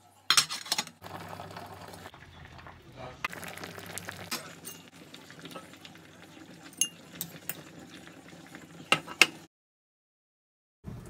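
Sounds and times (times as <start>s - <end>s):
boiling water bubbling: 1.0s - 9.4s
metal spoon clinking on saucepan: 4.6s - 4.9s.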